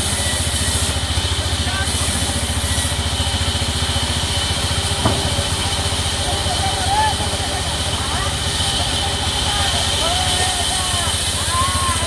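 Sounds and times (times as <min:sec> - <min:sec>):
sawmill machinery running: 0:00.0 - 0:12.0
sharp knock: 0:05.0 - 0:06.0.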